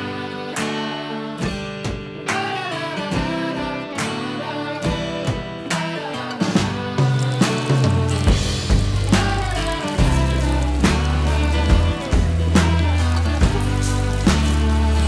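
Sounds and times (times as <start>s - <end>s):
background music with steady beat: 1.4s - 15.0s
deep bass notes: 7.8s - 15.0s.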